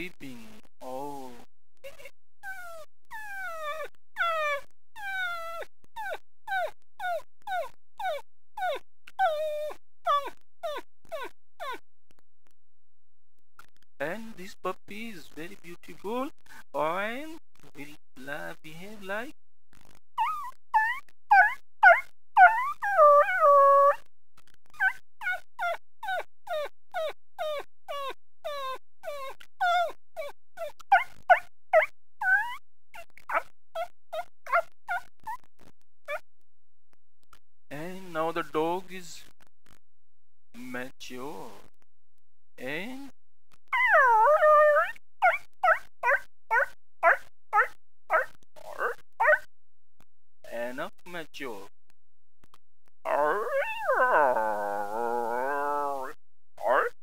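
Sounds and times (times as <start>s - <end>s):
man imitating puppy whimpers: 1.0s - 11.8s, 20.2s - 24.0s, 32.2s - 32.6s, 43.8s - 44.9s, 45.6s - 49.4s, 53.1s - 57.0s.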